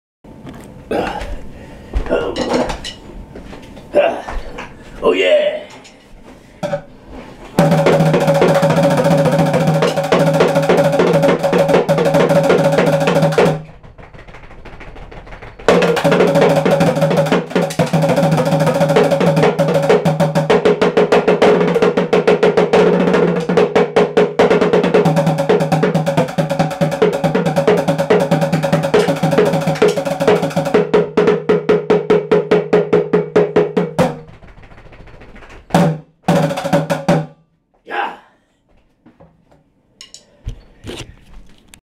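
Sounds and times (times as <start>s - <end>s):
bongo drum roll: 7.5s - 37.3s.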